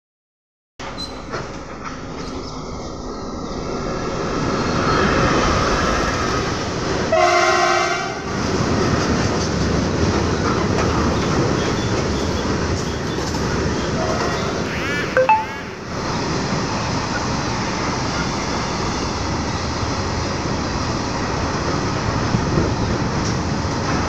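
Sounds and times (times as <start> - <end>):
diesel locomotive passing: 1.3 - 24.0
locomotive horn: 7.1 - 8.3, 14.0 - 16.0.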